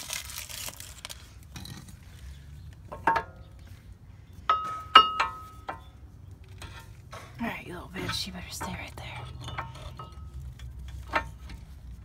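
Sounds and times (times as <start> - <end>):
metal clinks of brake caliper: 4.5 - 6.9.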